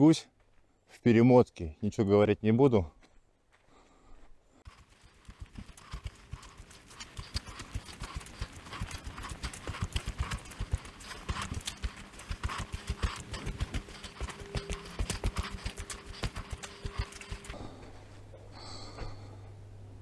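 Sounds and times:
sped up footsteps on gravel: 3.0 - 18.2.

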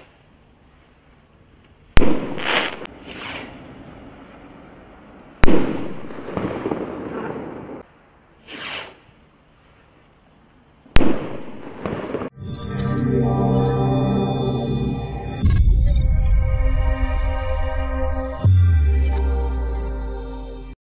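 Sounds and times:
firework rockets hissing launch: 2.0 - 3.6, 8.4 - 9.2
firework bangs: 2.0 - 4.3, 5.4 - 7.8, 11.0 - 12.3.

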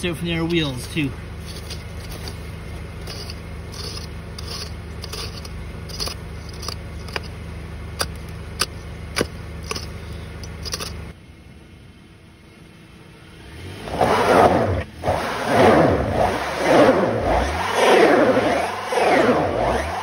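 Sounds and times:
steady low hum: 0.0 - 14.0
hammer scraping ice: 0.5 - 7.4, 8.0 - 11.0.

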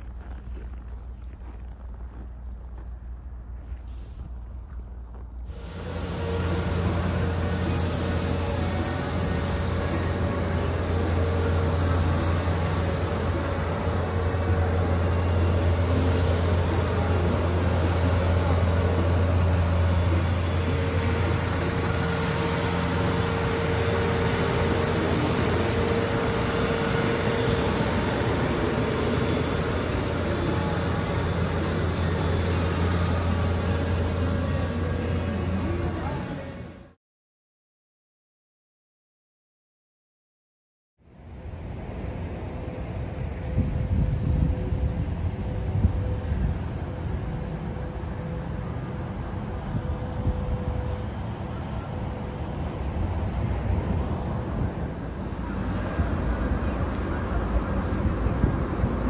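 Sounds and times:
city street rumble: 0.0 - 37.0, 41.0 - 59.0
faint hum: 0.0 - 37.0.

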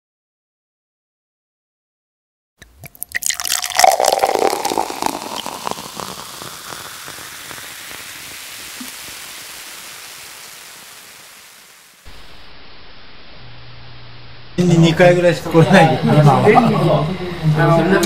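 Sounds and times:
liquid pouring with glugs: 2.6 - 9.8
faint hiss: 4.0 - 14.6.

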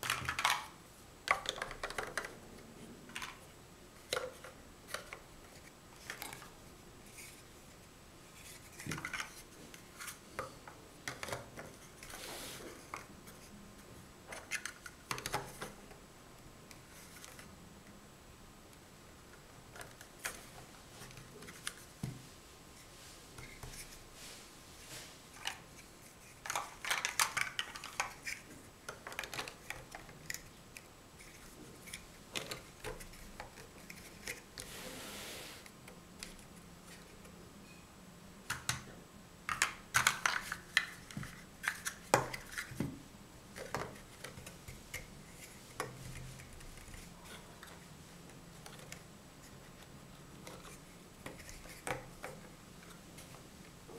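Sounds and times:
plastic blocks clicking together: 1.3 - 2.4, 26.4 - 30.5, 39.5 - 42.8.

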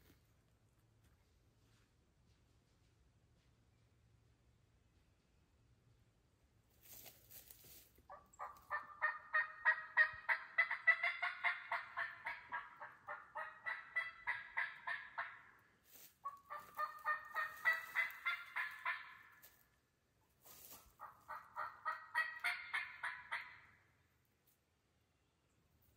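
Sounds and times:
turkey calling: 8.1 - 19.6, 20.6 - 23.9.

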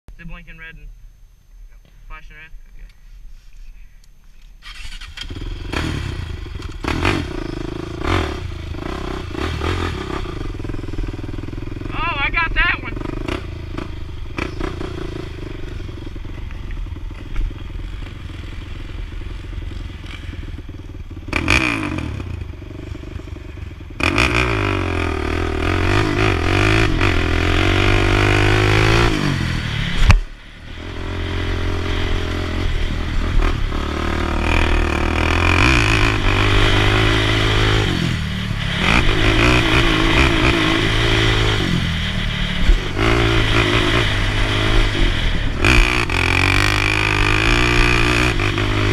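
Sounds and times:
quad engine revving: 4.6 - 48.9.

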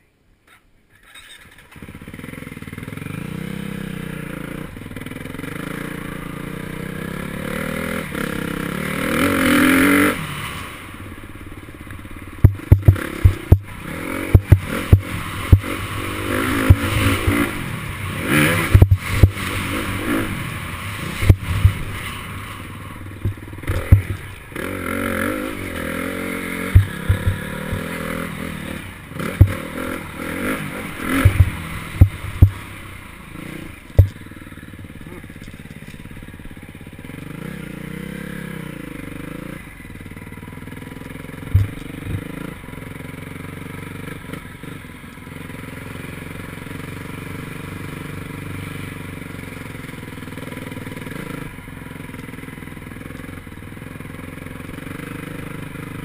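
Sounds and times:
dirt bike engine: 0.4 - 56.0
knocks and clatter: 41.5 - 42.3.

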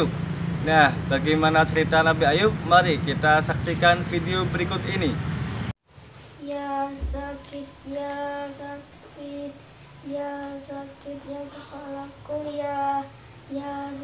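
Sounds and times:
child singing held notes: 6.4 - 14.0.

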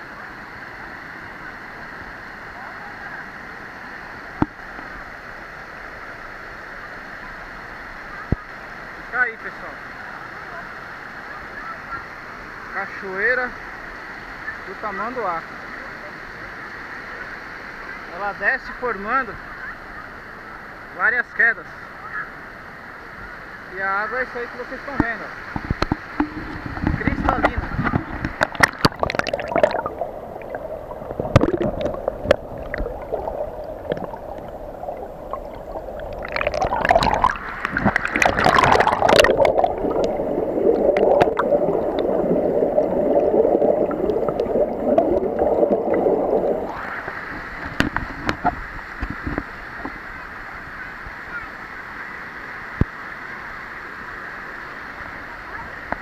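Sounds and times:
stream running over rock: 0.0 - 56.0
water splashing: 25.0 - 49.9
underwater gurgling and bubbling: 25.5 - 49.5.

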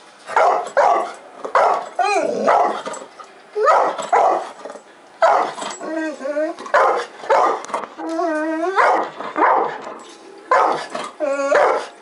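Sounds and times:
dog barking: 0.3 - 1.8, 2.5 - 2.8, 3.6 - 4.5, 5.2 - 5.6, 6.7 - 7.6, 8.8 - 9.8, 10.5 - 10.9, 11.5 - 11.9
dog yelping: 5.2 - 9.8, 10.5 - 12.0.

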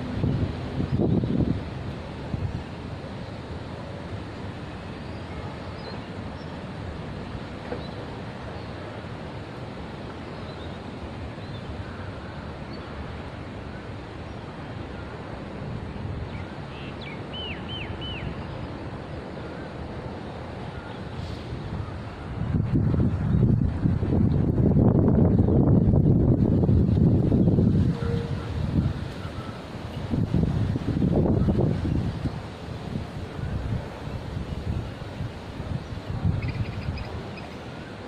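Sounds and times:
wind noise on microphone: 0.0 - 4.4, 21.1 - 38.0.

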